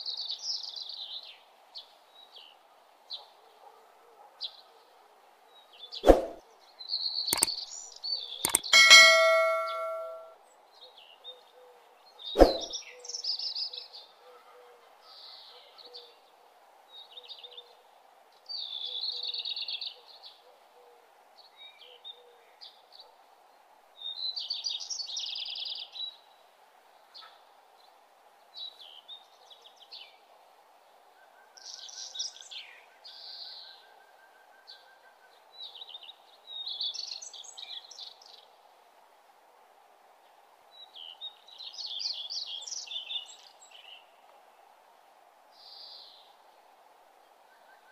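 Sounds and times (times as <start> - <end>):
sharp click: 7.4 - 7.6, 8.4 - 10.3
low background hiss: 14.9 - 47.9.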